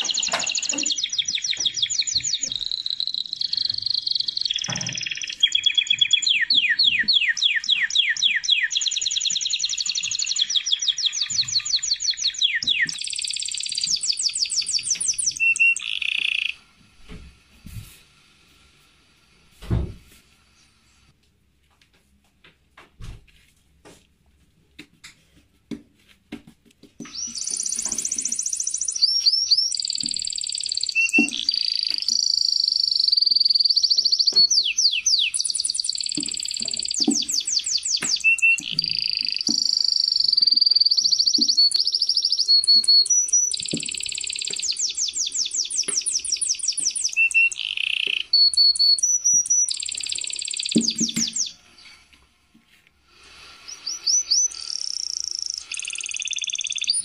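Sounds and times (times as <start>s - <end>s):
songbird singing: 0.0s - 16.6s, 27.1s - 52.0s, 53.6s - 57.0s.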